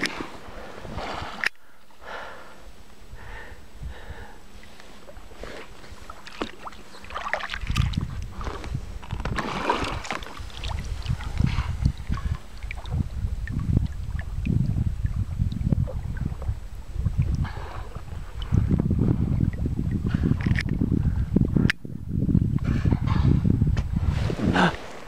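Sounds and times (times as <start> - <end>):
wind rumble on microphone: 0.0 - 1.5, 3.0 - 25.0
paddle splashing in water: 5.5 - 8.6, 9.2 - 13.0.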